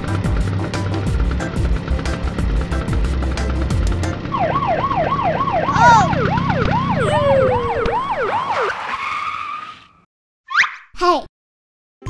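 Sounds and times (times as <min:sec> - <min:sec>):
police siren wailing: 0:04.3 - 0:09.0.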